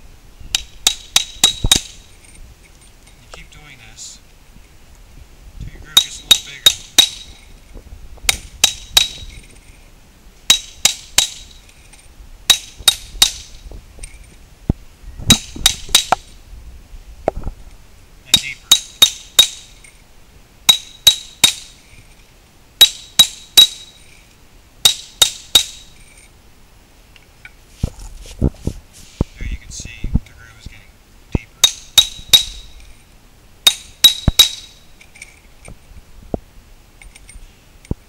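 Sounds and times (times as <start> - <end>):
hammer striking a chisel: 0.5 - 2.0, 6.0 - 7.3, 8.3 - 9.4, 10.5 - 11.6, 12.5 - 13.5, 18.3 - 19.6, 20.7 - 21.7, 22.8 - 23.9, 24.8 - 25.8, 31.6 - 32.6, 33.7 - 34.7.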